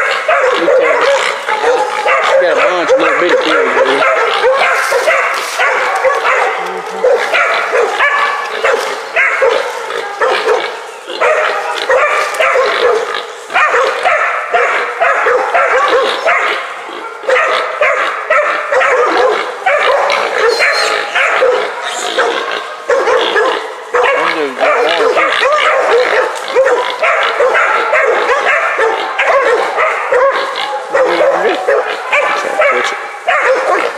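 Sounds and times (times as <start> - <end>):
dogs barking: 0.0 - 33.9.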